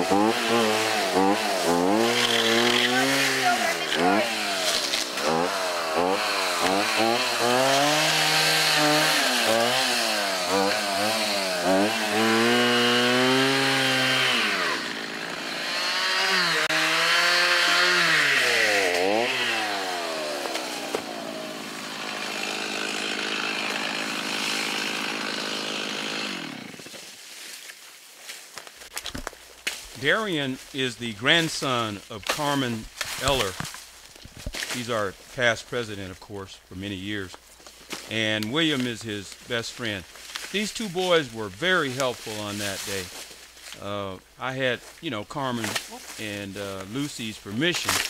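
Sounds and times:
chainsaw revving: 0.0s - 27.0s.

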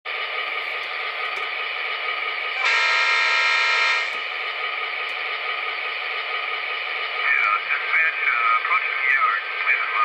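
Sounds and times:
diesel engine idle through small speaker: 0.1s - 10.0s
locomotive horn blast: 2.6s - 4.2s.

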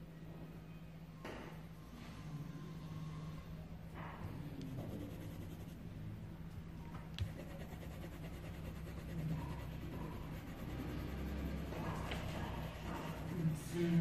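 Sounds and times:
steady low hum: 0.0s - 14.0s
pencil shading on paper: 4.3s - 5.8s, 7.2s - 14.0s.

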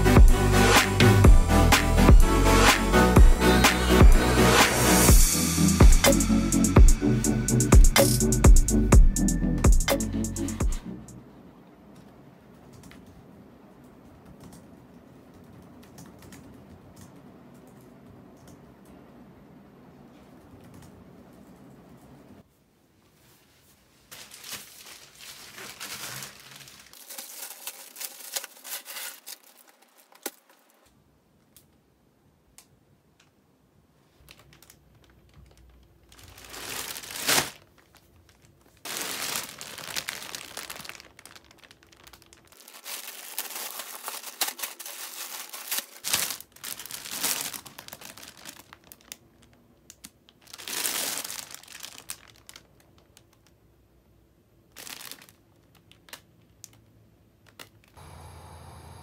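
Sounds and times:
plastic packaging crinkling: 24.0s - 30.8s, 34.2s - 53.6s, 54.7s - 58.0s
plastic tearing: 24.1s - 30.8s, 34.2s - 53.6s, 54.7s - 58.0s.

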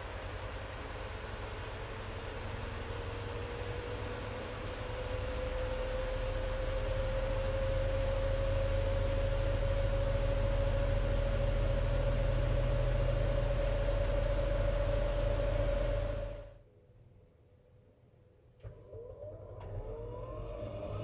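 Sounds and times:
washer-dryer spinning: 0.1s - 16.5s.

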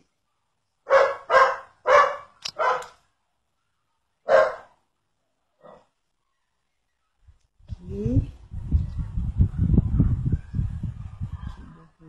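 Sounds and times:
dog barking: 0.8s - 3.0s, 4.2s - 4.8s, 5.6s - 5.9s.

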